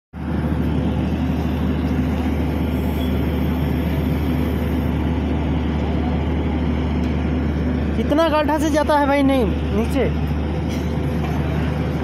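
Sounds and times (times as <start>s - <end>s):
drilling rig engine humming: 0.2s - 12.0s.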